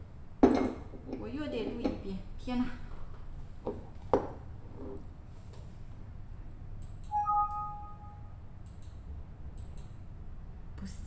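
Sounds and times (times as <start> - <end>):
low room hum: 0.0 - 11.0
two-note tone: 7.1 - 8.4.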